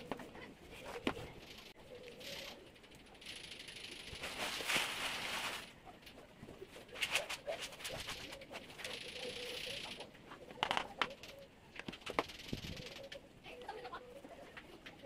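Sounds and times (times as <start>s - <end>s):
dove cooing faintly: 0.0s - 4.8s, 5.4s - 15.0s
pellet litter rustling: 4.2s - 5.8s.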